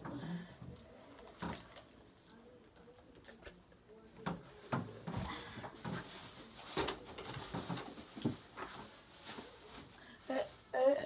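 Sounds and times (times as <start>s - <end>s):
rustling on a bed: 5.0s - 11.0s.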